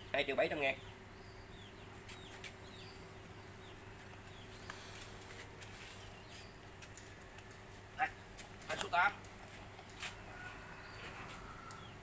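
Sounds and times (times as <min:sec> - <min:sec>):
small bird chirping: 0:00.2 - 0:07.1.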